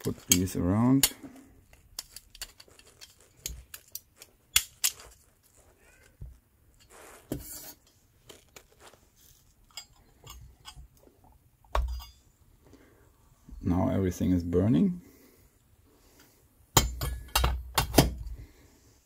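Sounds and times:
light metal clicks and clinks: 9.7s - 11.0s, 11.7s - 12.2s.

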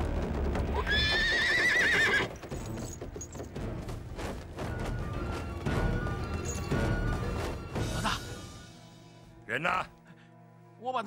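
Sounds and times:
hoofbeats: 0.1s - 8.4s
horse whinnying: 0.7s - 2.5s.

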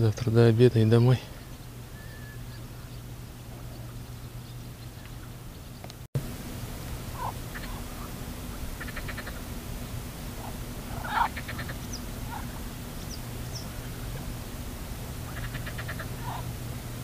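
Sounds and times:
steady low hum: 0.0s - 17.0s
rattling animal calls: 7.1s - 9.5s, 10.3s - 14.4s, 15.2s - 16.6s.

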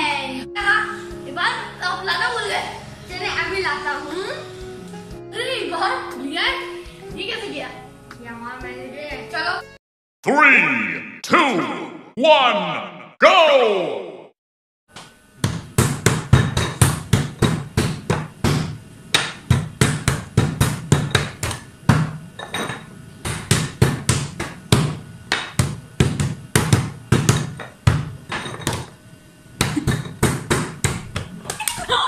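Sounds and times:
hands slapping a wooden tabletop: 23.3s - 28.1s.

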